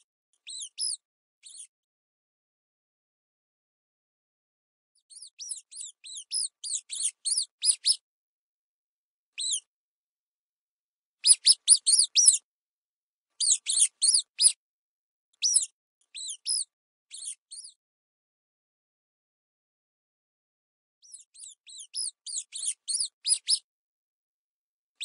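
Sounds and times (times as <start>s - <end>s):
mouse squeaking: 0.4s - 1.7s, 5.0s - 8.0s, 9.4s - 9.7s, 11.2s - 12.4s, 13.4s - 14.6s, 15.4s - 17.8s, 21.0s - 23.7s.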